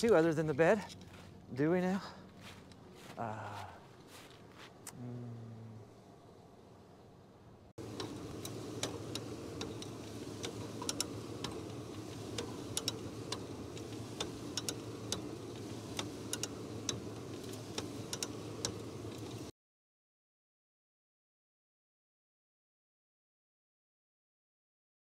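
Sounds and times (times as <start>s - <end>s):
steady low hum: 0.0s - 19.5s
ratchet clicking: 8.0s - 18.9s.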